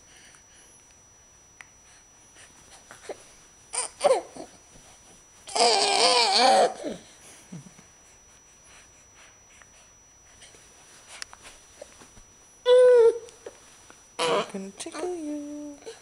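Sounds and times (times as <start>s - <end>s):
baby babbling: 14.2s - 15.1s.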